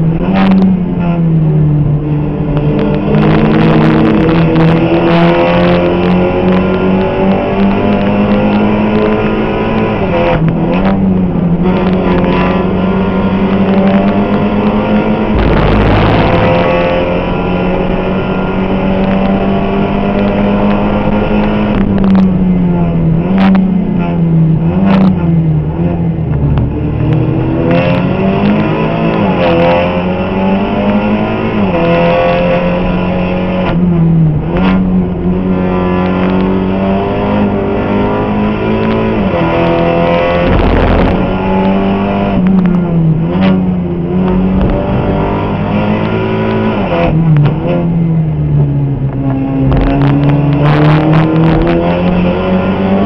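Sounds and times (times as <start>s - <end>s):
rough rumble: 0.0s - 53.0s
race car engine revving: 0.1s - 53.0s.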